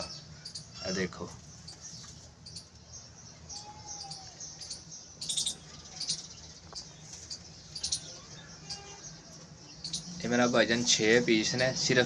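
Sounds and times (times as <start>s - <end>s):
high-pitched bird chirps: 1.6s - 10.2s.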